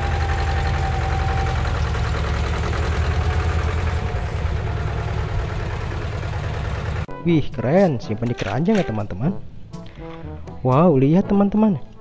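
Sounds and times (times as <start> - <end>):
diesel engine running at low revs: 0.0 - 7.1.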